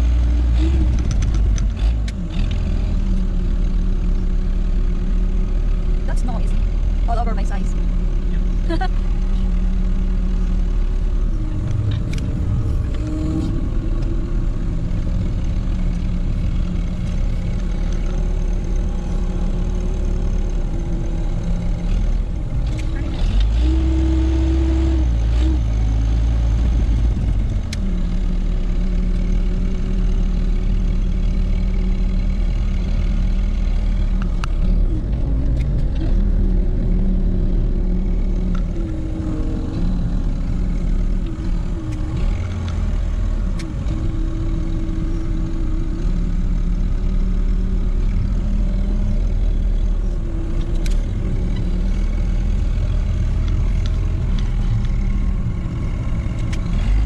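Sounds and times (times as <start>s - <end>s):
tractor engine running: 0.0s - 57.0s
sharp clicks and clanks: 0.8s - 2.6s.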